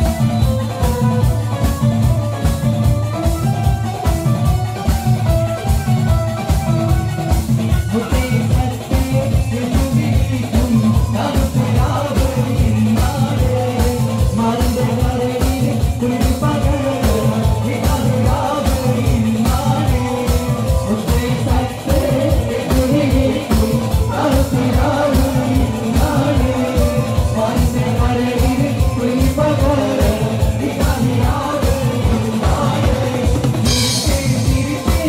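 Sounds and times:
amplified backing music with beat: 0.0 - 35.0
man singing into a microphone: 0.0 - 35.0.

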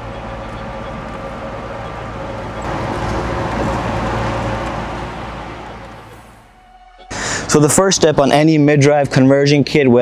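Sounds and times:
steady low hum: 0.0 - 8.4
motor vehicle passing: 0.2 - 7.5.

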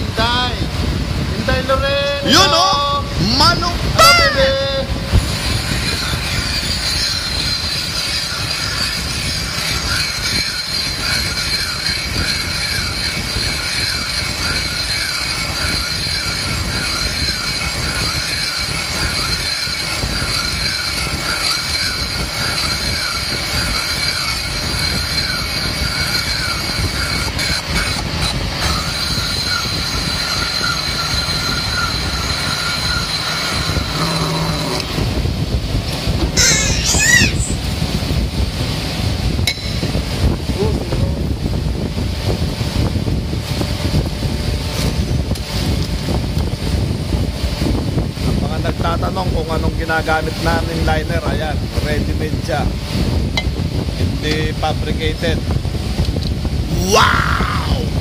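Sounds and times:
lathe tool squealing on metal: 4.0 - 35.2, 36.4 - 37.7
lathe machine running: 4.3 - 36.8.

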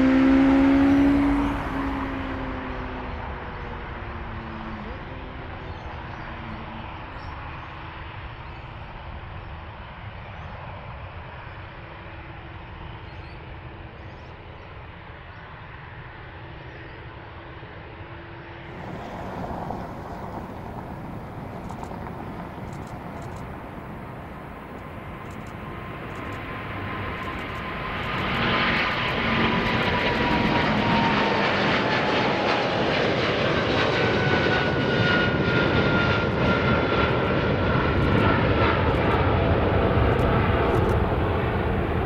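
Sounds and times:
jet engines rumbling: 0.0 - 9.1, 18.7 - 42.0
loud bright jet noise: 18.7 - 42.0.

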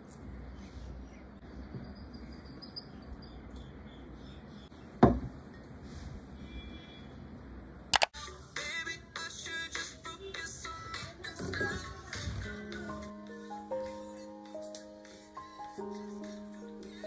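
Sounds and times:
faint high chirps: 0.6 - 4.8
sharp knock: 5.0 - 5.4.

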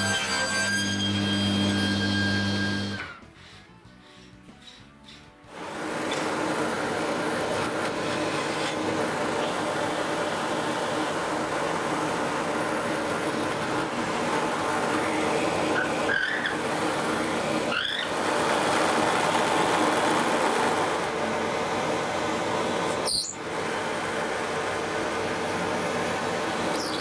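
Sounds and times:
drill bit squealing: 0.4 - 3.1, 15.7 - 16.6, 17.7 - 18.2, 26.7 - 27.0
dust extraction running: 1.0 - 3.6, 5.5 - 27.0.

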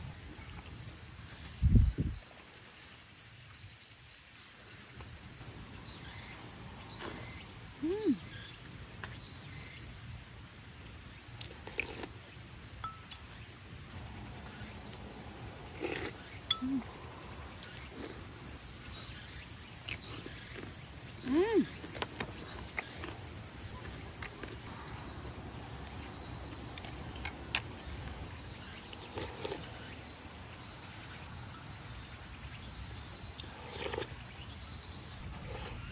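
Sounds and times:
insects chirring: 0.0 - 35.9
person humming: 7.8 - 8.2, 16.5 - 16.9, 21.2 - 21.8
chewing: 11.4 - 12.2, 15.5 - 17.0, 19.7 - 24.7, 28.8 - 29.8, 33.4 - 34.2.

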